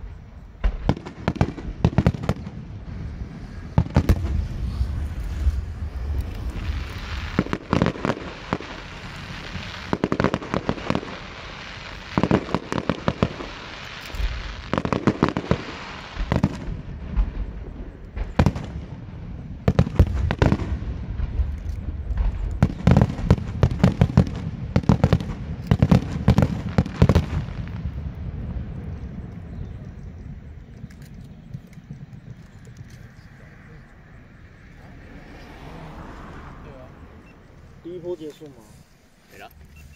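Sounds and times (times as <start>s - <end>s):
fireworks bangs and crackles: 0.0s - 39.9s
low rumble: 2.4s - 9.6s, 27.7s - 35.5s.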